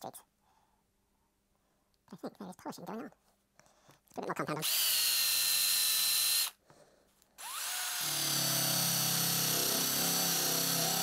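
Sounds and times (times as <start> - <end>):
electric drill whining: 4.6 - 6.6, 7.4 - 11.0.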